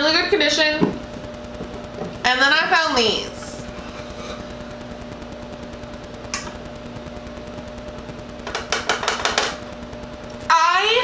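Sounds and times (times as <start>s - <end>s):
steady low hum: 0.0s - 11.0s
plastic canisters clicking and knocking: 8.5s - 9.6s.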